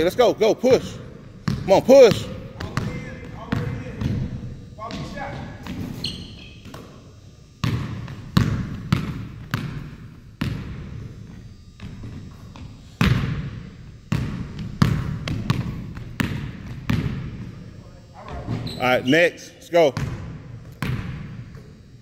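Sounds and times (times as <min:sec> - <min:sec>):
basketball bouncing on wooden floor: 0:01.4 - 0:07.0, 0:07.6 - 0:17.5, 0:20.0 - 0:21.8.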